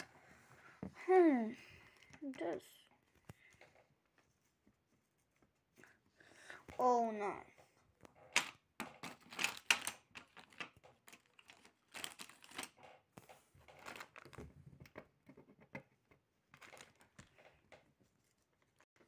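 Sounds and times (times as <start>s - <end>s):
paper and sticky tape rustling: 9.0s - 14.4s.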